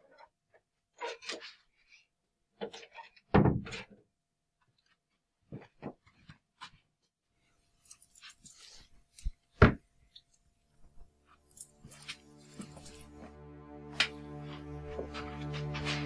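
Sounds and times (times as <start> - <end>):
clothing rustles: 5.4 - 13.3
footsteps: 10.8 - 16.0.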